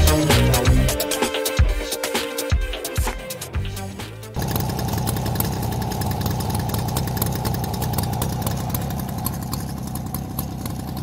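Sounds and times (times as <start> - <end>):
moped engine idling: 3.6 - 11.0.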